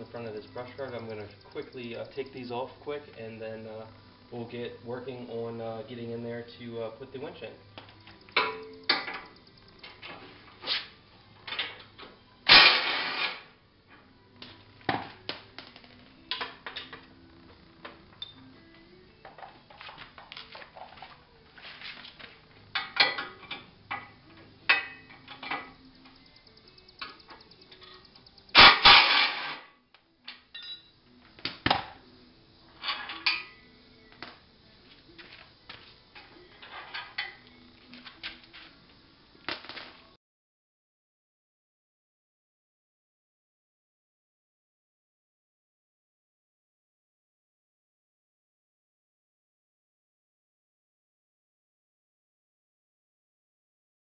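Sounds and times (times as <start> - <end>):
metal tools clinking on concrete: 8.2 - 10.2, 19.2 - 25.8, 30.3 - 30.9, 32.8 - 33.7, 35.2 - 38.7.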